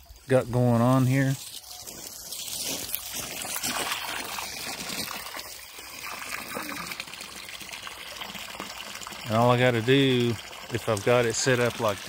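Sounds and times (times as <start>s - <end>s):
stream trickling over gravel: 0.0s - 12.0s
footsteps on gravel: 1.0s - 5.1s.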